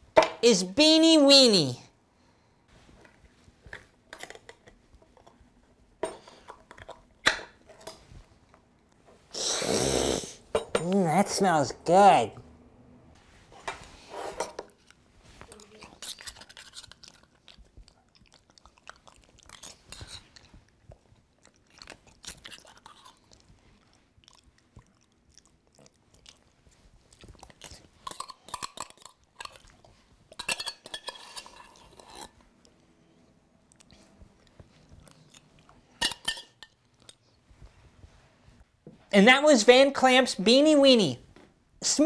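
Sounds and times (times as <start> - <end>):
person chewing: 14.7 - 30.5, 31.2 - 33.0, 33.6 - 36.0
spoon clinking and scraping a can: 16.0 - 17.1, 30.4 - 32.4, 36.0 - 36.8.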